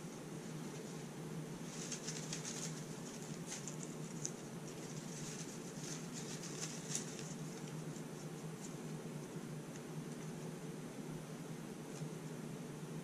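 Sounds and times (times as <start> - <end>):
steady low hum: 0.0 - 13.0
paper slips rustling and crinkling: 1.6 - 7.9.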